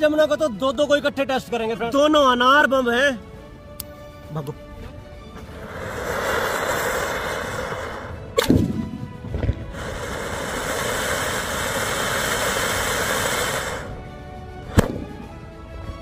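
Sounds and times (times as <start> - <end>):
firecracker fountain hissing: 5.3 - 14.1
sharp bang: 14.7 - 15.3.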